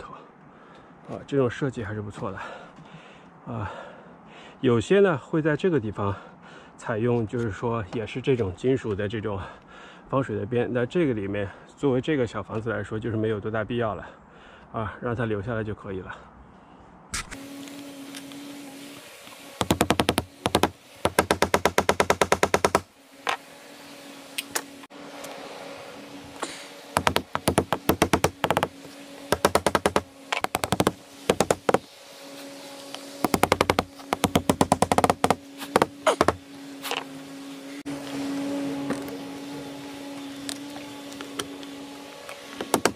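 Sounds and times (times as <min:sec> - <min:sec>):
hammer driving nails: 0:19.6 - 0:22.9, 0:27.0 - 0:31.9, 0:33.2 - 0:36.4, 0:42.6 - 0:42.9.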